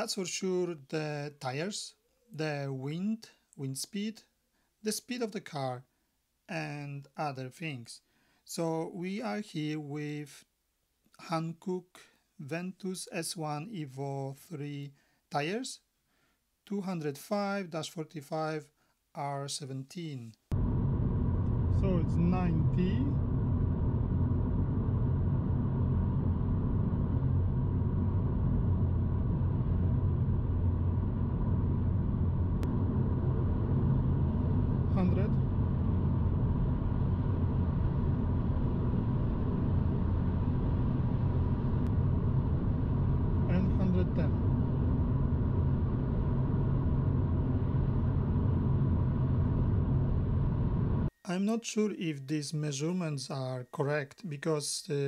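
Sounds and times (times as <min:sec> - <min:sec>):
road and wind noise in car cabin: 0:20.5 - 0:51.1.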